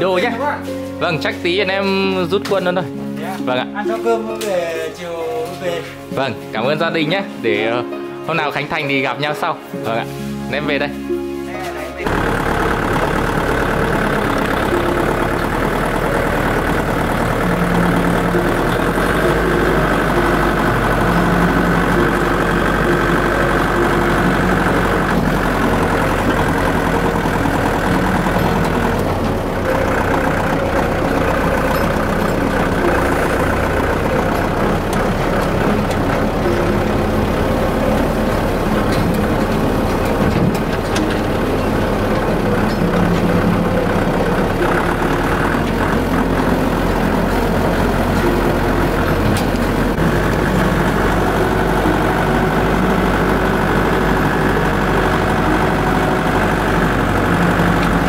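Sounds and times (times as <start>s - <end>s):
vehicle engine running: 12.0s - 58.0s.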